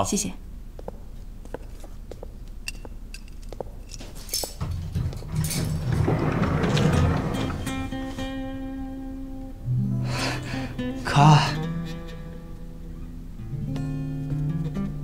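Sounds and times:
scraping and rustling: 0:03.7 - 0:08.4.

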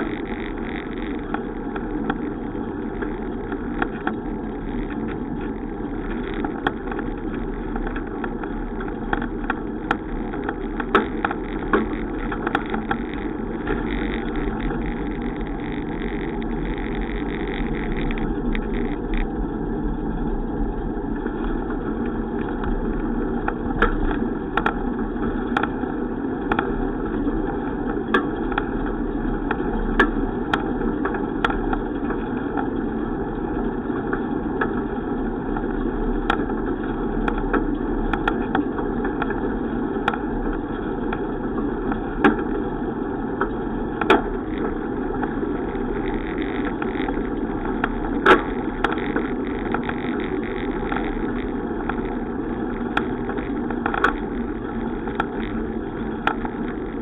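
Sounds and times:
sharp clicks and knocks: 0:00.0 - 0:19.4, 0:21.2 - 0:25.8, 0:43.4 - 0:57.0
bicycle road and wind noise: 0:00.0 - 0:57.0.

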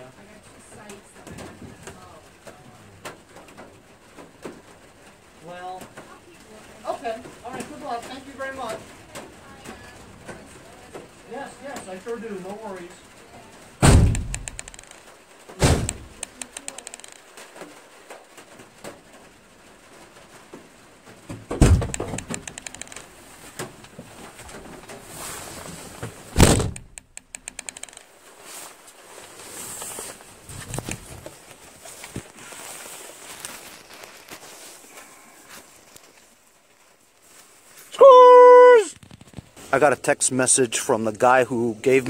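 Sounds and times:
van doors slamming: 0:13.8 - 0:14.7, 0:15.6 - 0:16.2, 0:21.4 - 0:22.4, 0:26.3 - 0:27.0
door and body panels rattling: 0:13.8 - 0:15.0, 0:15.6 - 0:16.4, 0:21.3 - 0:23.8, 0:26.3 - 0:27.8.

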